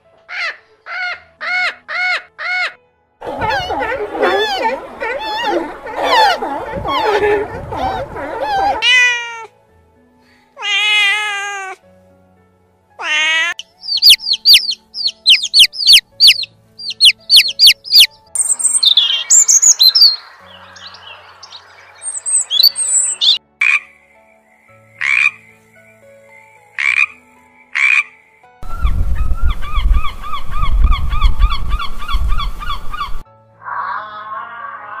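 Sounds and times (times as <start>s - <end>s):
gulls calling: 1.6s - 9.0s, 13.2s - 23.4s
bird chirps: 13.6s - 23.4s.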